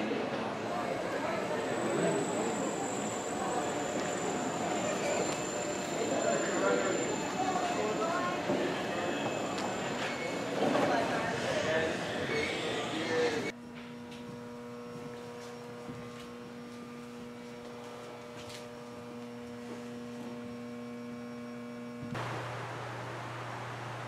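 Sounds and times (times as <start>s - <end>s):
steady electrical hum: 12.7s - 24.0s.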